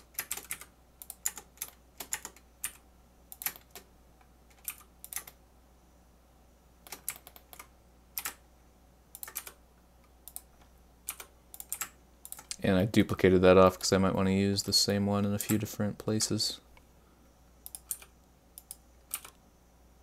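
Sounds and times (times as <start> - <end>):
computer keyboard typing: 0.0 - 3.9, 4.5 - 5.4, 6.9 - 8.4, 9.2 - 9.6, 10.3 - 12.6, 17.6 - 19.4.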